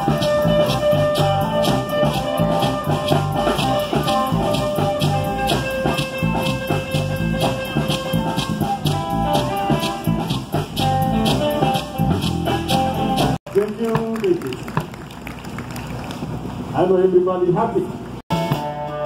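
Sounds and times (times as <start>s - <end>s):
flute melody: 0.0s - 13.4s
bass: 0.0s - 19.0s.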